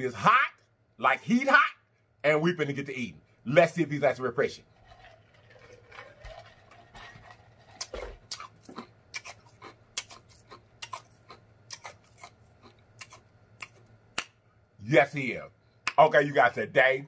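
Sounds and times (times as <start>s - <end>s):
wet mouth clicks: 7.8s - 14.4s.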